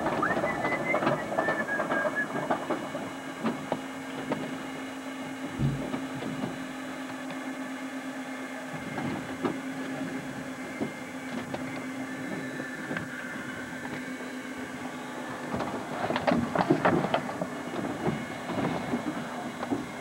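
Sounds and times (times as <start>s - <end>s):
low mechanical hum: 0.0s - 20.0s
light knocks and clatter: 5.3s - 7.4s.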